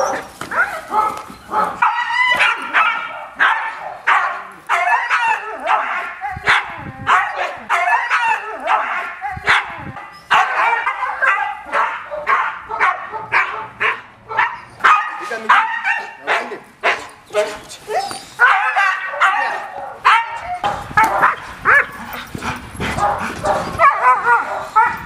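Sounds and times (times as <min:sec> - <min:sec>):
dogs barking aggressively: 0:00.0 - 0:25.0.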